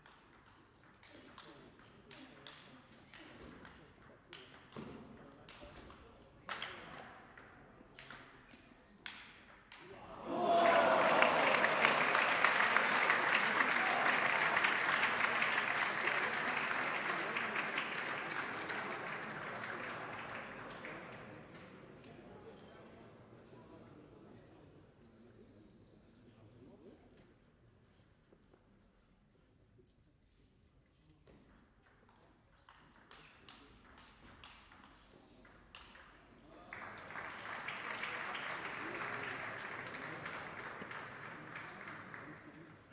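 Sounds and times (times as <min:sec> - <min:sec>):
audience applauding: 0:10.2 - 0:21.2, 0:36.7 - 0:42.6.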